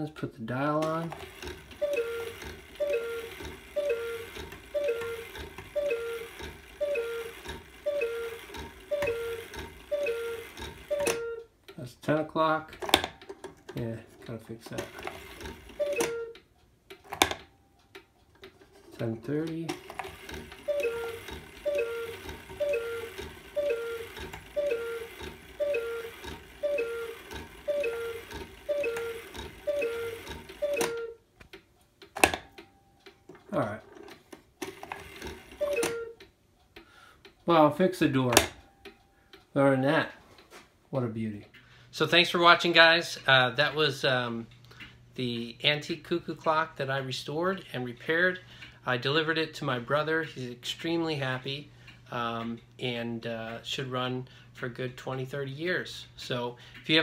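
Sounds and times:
cuckoo clock calling: 1.1 - 11.6, 14.9 - 18.4, 19.8 - 31.3, 34.6 - 40.2.

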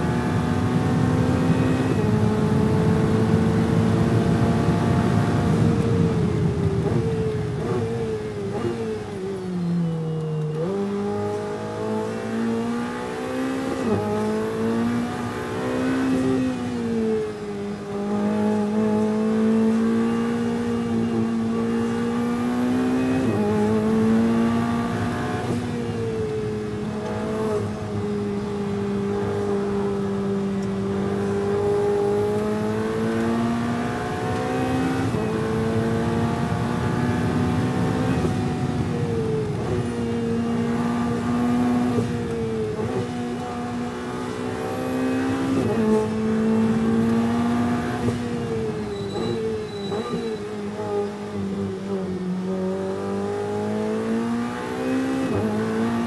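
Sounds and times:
race car engine revving through gears: 0.0 - 56.0.

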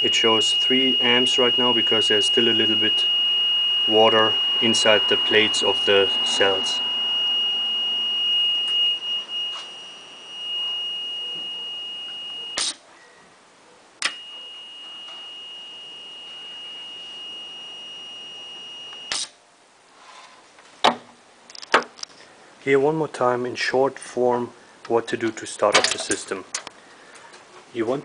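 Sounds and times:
high-pitched alarm tone: 0.0 - 12.8, 14.0 - 19.3
switch click: 14.0 - 14.2.

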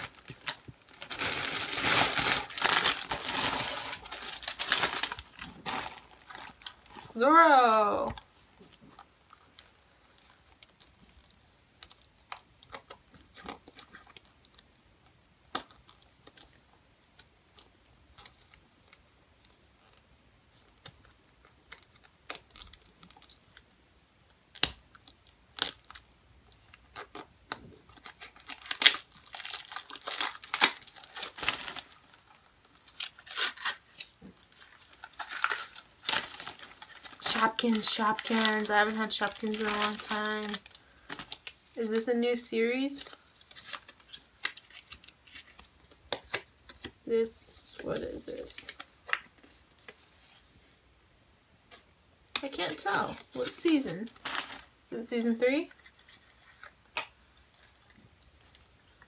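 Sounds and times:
foil packet crinkling and clicking: 0.0 - 7.0, 24.5 - 42.1, 42.9 - 47.0, 52.4 - 54.7
plastic foil packaging tearing: 0.0 - 7.1, 24.5 - 46.8, 52.6 - 54.7.

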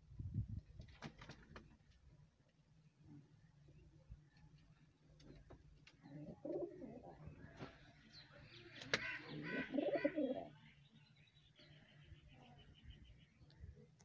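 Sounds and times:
pigeons cooing: 6.0 - 7.7, 8.8 - 10.6.

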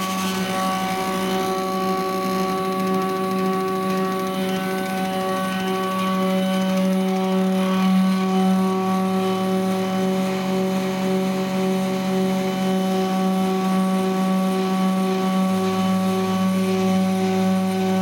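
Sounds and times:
stepper motors humming: 0.0 - 11.0.

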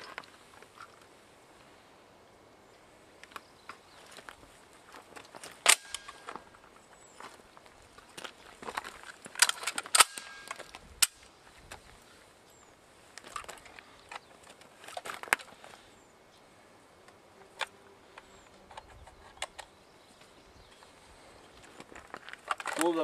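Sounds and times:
gun metallic clicks: 5.6 - 6.4, 9.3 - 11.3.

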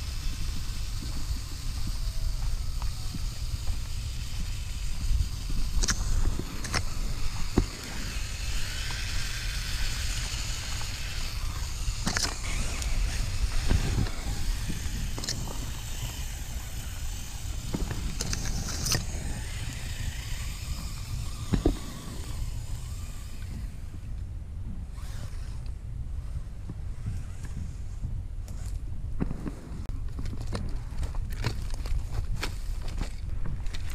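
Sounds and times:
rustling and crunching over gravel: 0.0 - 24.2, 26.2 - 33.9.

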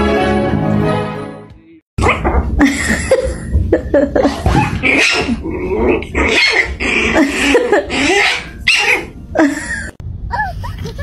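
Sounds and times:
puppy yipping and whining: 8.0 - 9.1.

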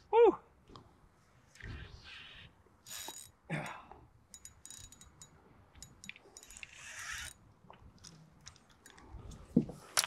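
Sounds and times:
fishing reel clicking: 2.8 - 3.4, 4.3 - 7.4.

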